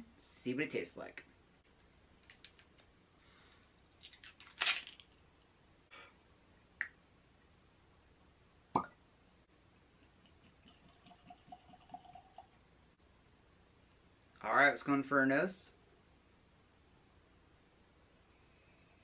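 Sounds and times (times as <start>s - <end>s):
cork pop: 8.7s - 9.0s
whiskey trickling into glass: 10.8s - 12.5s.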